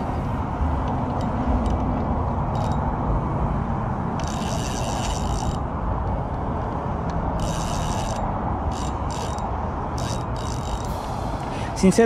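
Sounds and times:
low background rush: 0.0 - 12.0
fishing reel gears whirring: 2.5 - 2.9, 4.2 - 5.8, 7.3 - 11.1.

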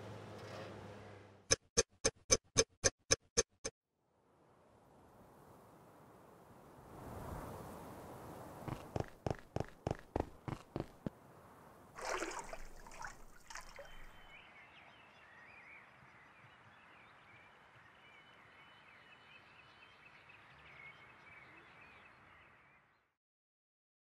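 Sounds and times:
water pouring and splashing: 12.0 - 14.3
faint birds chirping: 12.1 - 23.2.

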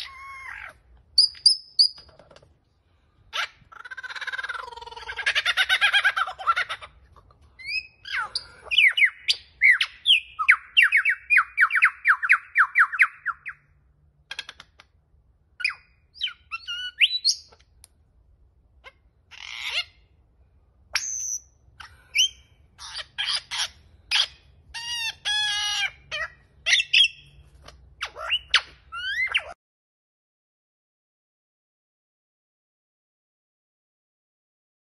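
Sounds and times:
lyrebird singing mimicked calls: 0.0 - 2.2, 15.6 - 17.7.

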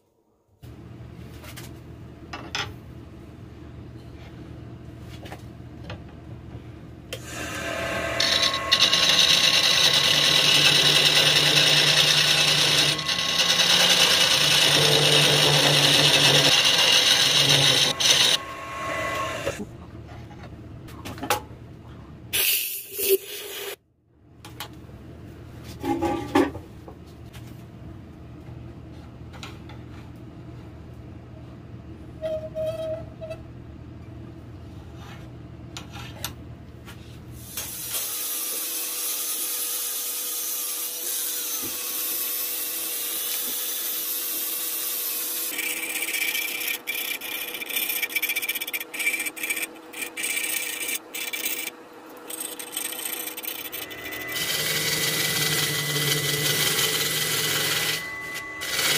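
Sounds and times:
rotary tool grinding wood: 7.3 - 19.6, 45.4 - 58.9.

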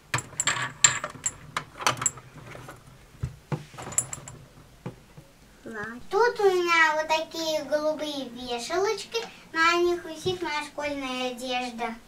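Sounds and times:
handling clicks and rustles: 0.0 - 5.3.

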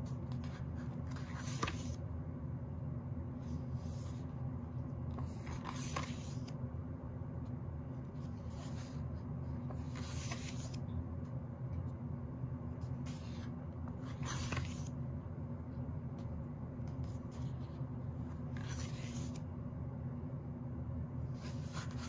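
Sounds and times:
pages turning: 0.1 - 2.0, 5.1 - 6.6, 8.1 - 10.8, 12.9 - 15.0, 16.9 - 19.4.

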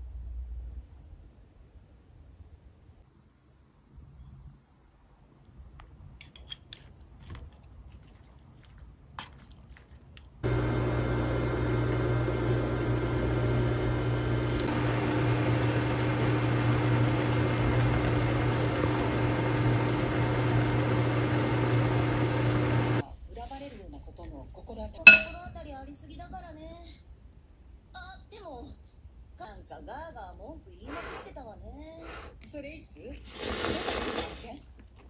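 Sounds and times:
range hood fan running: 10.4 - 23.0.

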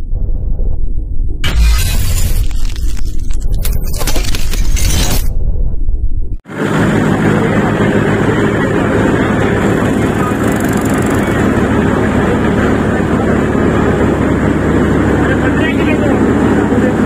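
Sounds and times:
thresher engine drone: 1.4 - 5.3, 6.5 - 17.0
mechanical whirr: 1.4 - 6.0, 9.9 - 11.8.

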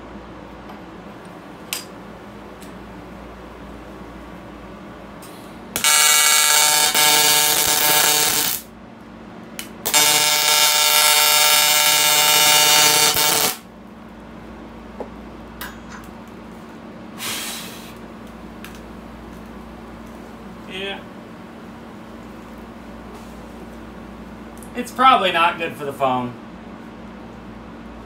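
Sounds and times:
welding arc buzzing: 5.7 - 8.7, 9.6 - 13.7.

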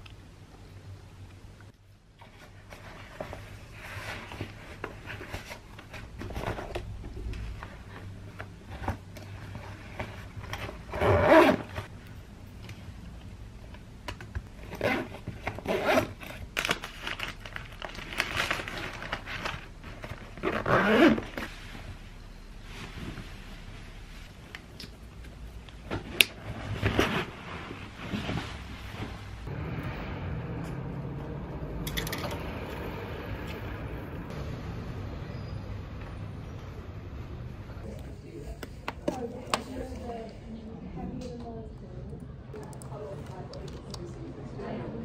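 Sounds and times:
zipper being pulled: 10.9 - 11.9, 14.7 - 16.3, 20.4 - 21.5
cloth rustling: 25.8 - 29.5.

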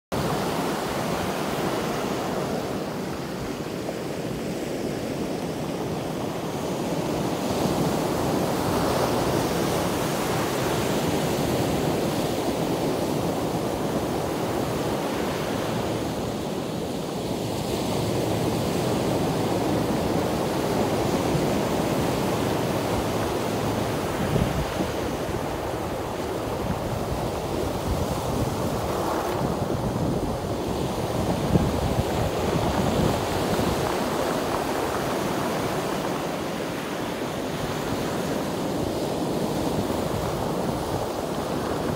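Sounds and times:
ocean surf breaking on rocks: 0.2 - 41.9.

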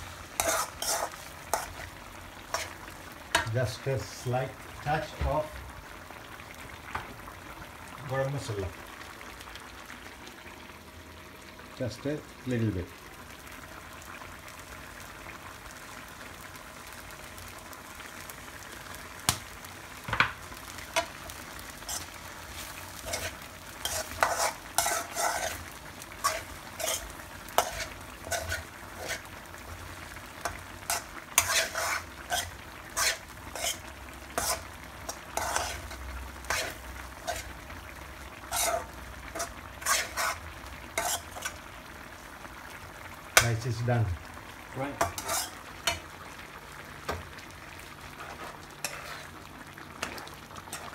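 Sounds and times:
rice sizzling in a wok: 0.0 - 50.9
metal spoon scraping a wok: 0.4 - 1.9, 2.5 - 3.5, 23.0 - 25.6, 26.2 - 29.2, 30.9 - 33.8, 34.4 - 37.5, 38.5 - 40.4, 41.0 - 41.6, 45.0 - 46.0, 48.2 - 49.4.

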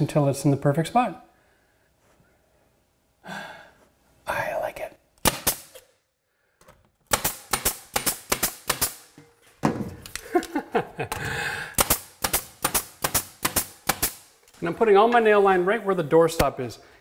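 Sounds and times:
pneumatic nailer firing: 5.2 - 5.9, 7.0 - 9.2, 11.7 - 14.3.

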